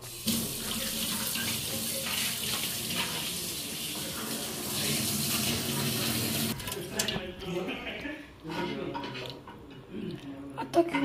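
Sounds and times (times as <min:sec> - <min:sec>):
water running from tap: 0:00.0 - 0:07.1.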